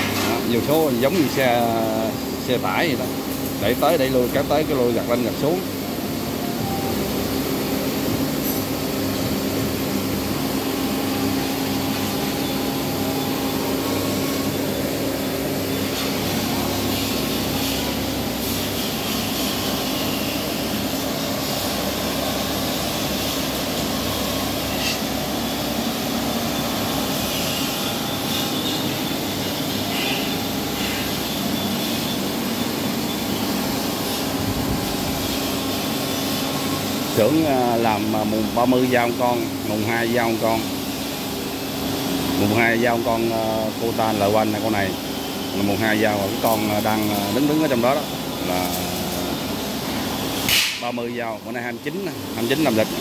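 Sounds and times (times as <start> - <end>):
steady mechanical hum: 0.0 - 53.0.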